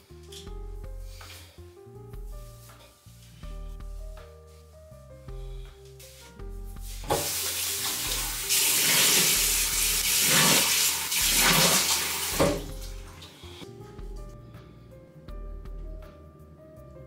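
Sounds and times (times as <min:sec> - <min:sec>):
water splashing onto face: 0:07.1 - 0:13.3.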